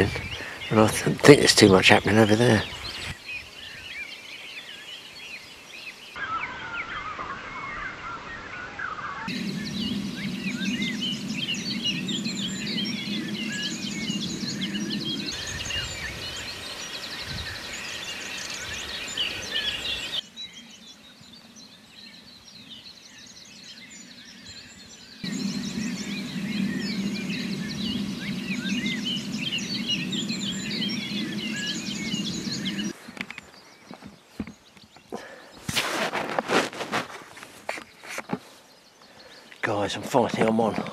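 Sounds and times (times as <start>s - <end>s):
songbirds singing and chirping: 0.0s - 40.9s
steady low hum: 9.3s - 16.6s, 25.2s - 33.0s.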